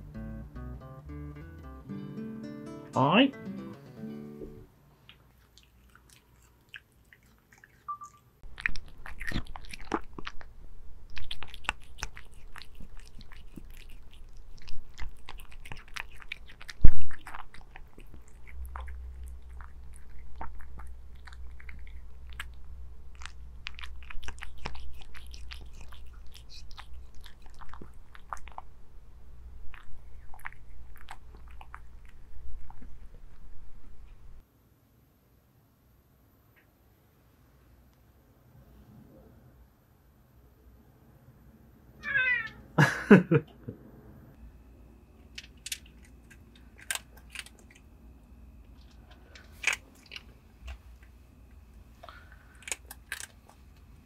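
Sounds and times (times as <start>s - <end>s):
cat chewing wetly: 5.0s - 33.5s, 51.8s - 54.0s
low steady rumble: 8.4s - 34.4s.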